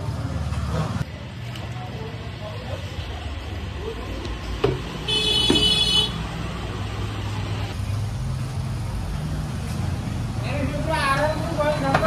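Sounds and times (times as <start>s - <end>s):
vehicle horn honking: 5.1s - 6.2s.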